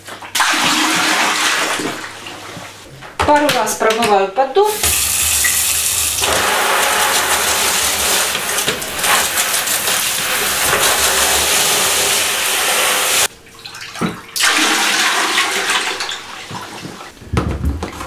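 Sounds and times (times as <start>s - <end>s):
water splashing into toilet bowl: 0.1s - 2.7s, 4.7s - 17.1s
shower spraying water into tray: 4.7s - 13.3s.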